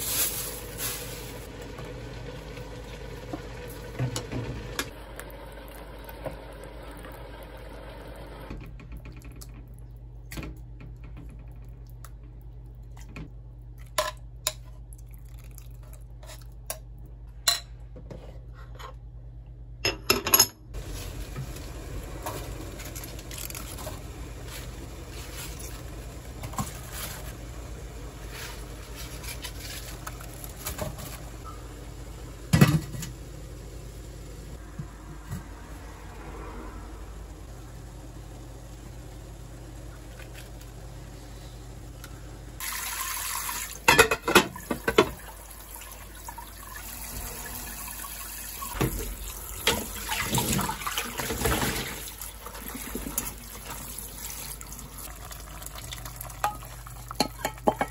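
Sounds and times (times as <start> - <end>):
steady low hum: 20.7 - 42.6.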